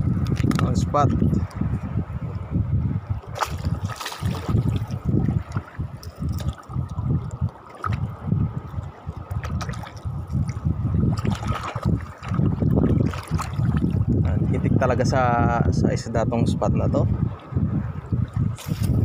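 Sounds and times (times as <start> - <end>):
wind buffeting microphone: 0.0 - 19.0
seawater sloshing: 3.0 - 14.6, 18.2 - 19.0.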